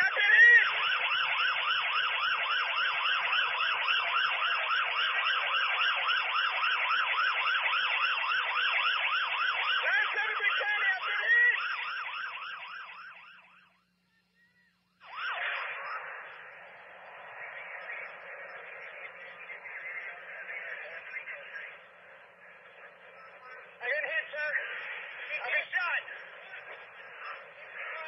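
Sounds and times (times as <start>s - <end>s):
police siren yelping: 0.0s - 20.3s.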